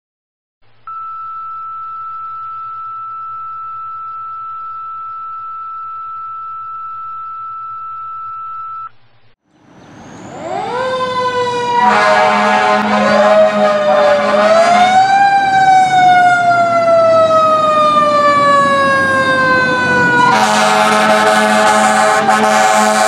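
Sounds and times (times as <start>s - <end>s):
faint low hum: 0.6s - 9.4s
long electronic beep tone: 0.9s - 8.9s
fire engine siren: 9.6s - 23.0s.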